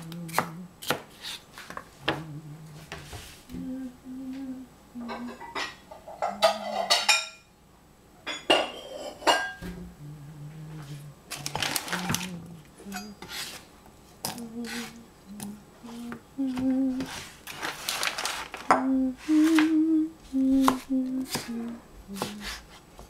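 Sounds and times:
dishes clinking and knocking: 0:05.1 - 0:07.5, 0:08.2 - 0:09.8.

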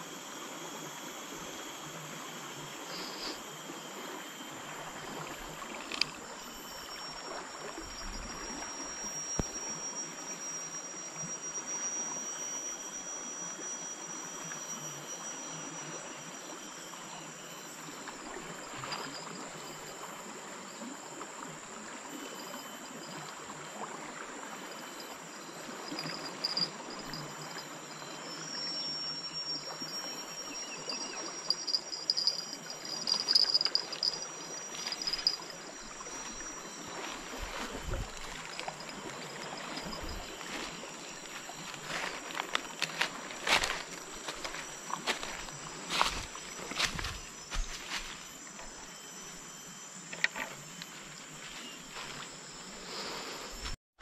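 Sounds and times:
insects buzzing: 0:00.0 - 0:53.8
chirps and clicks: 0:50.1 - 0:51.0.

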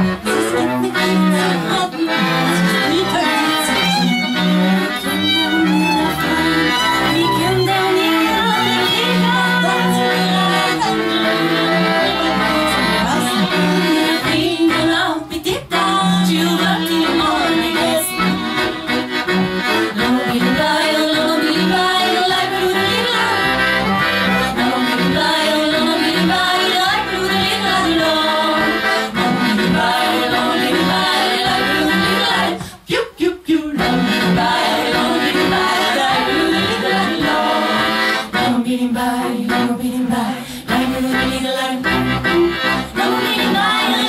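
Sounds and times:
clarinet: 0:00.0 - 0:15.0, 0:15.7 - 0:32.6, 0:40.7 - 0:44.0
cello: 0:00.0 - 0:15.1, 0:15.7 - 0:32.6, 0:33.8 - 0:44.0
person singing: 0:00.0 - 0:18.6, 0:20.0 - 0:23.7, 0:24.4 - 0:44.0
violin: 0:00.0 - 0:32.8, 0:33.8 - 0:44.0
accordion: 0:00.0 - 0:44.0.

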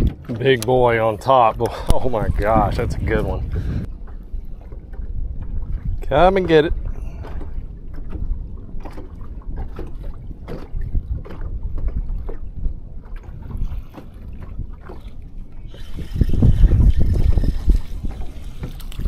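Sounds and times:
waves slapping boat hull: 0:00.0 - 0:19.0
wind buffeting microphone: 0:00.0 - 0:19.0.

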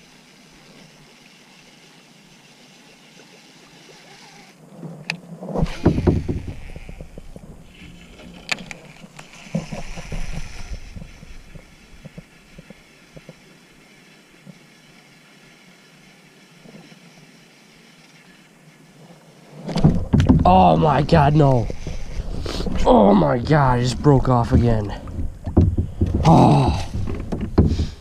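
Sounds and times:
handling rubbing and knocks: 0:04.8 - 0:13.4, 0:19.5 - 0:28.0.

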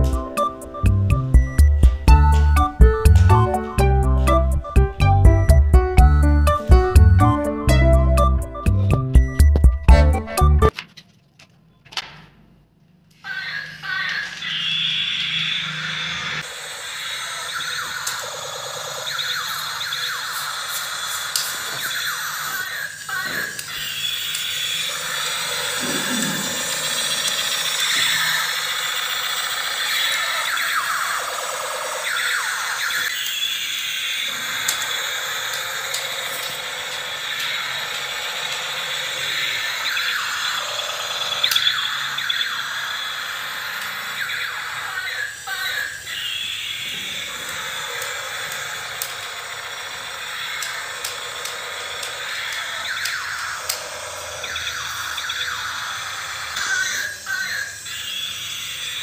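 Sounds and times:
steady high electronic tone: 0:00.0 - 0:10.7
toy whining sweeps: 0:13.2 - 0:59.0.

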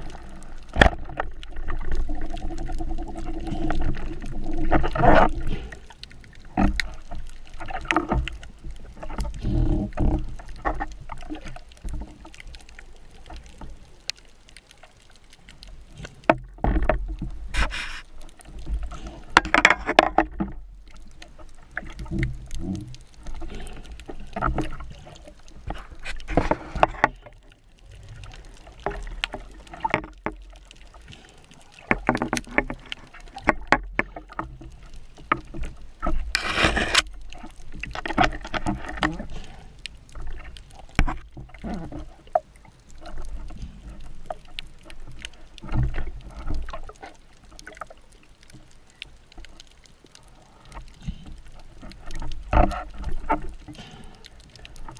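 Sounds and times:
water rushing: 0:00.0 - 0:50.9
underwater water sloshing: 0:00.0 - 0:54.9.

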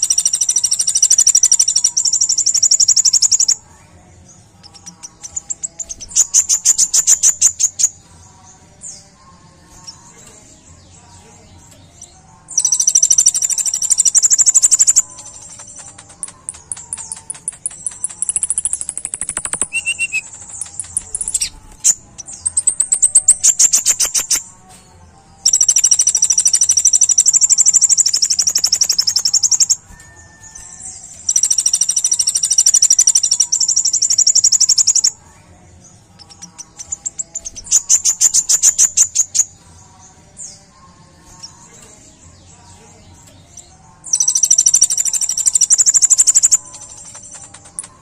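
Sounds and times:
sunbird singing trills: 0:00.0 - 0:03.7, 0:04.6 - 0:24.5, 0:25.4 - 0:35.3, 0:36.1 - 0:48.0.

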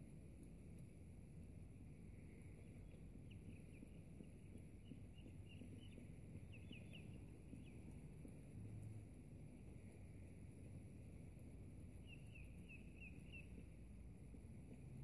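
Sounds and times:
faint bird chirps: 0:12.0 - 0:13.9.

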